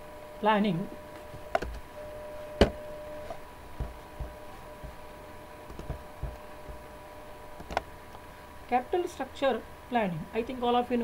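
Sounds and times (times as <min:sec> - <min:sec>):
faint electrical hum: 0:00.0 - 0:11.0
soft low thumps: 0:01.3 - 0:07.0.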